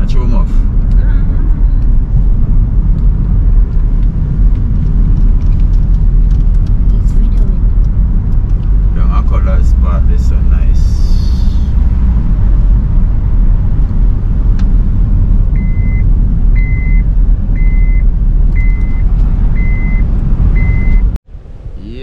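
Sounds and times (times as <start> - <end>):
car rumbling: 0.0 - 22.0
electronic warning beep: 15.6 - 16.0, 16.6 - 17.0, 17.6 - 19.0, 19.6 - 21.1.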